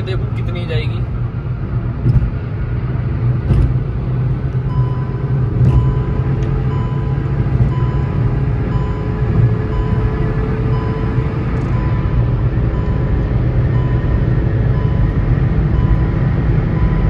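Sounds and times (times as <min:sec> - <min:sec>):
car engine drone: 0:00.0 - 0:17.0
road and wind noise: 0:00.0 - 0:17.0
short warning beeps: 0:04.7 - 0:17.0.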